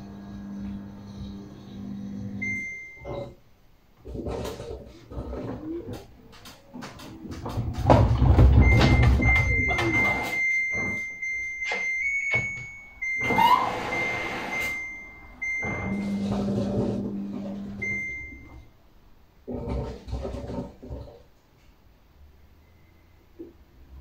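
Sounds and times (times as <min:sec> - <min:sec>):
high electronic tone: 0:08.7 - 0:16.7.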